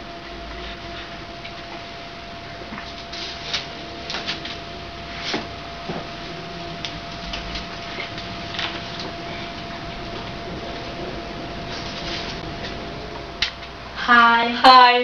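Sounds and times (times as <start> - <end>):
faint hum with thin tone: 0.0 - 15.0.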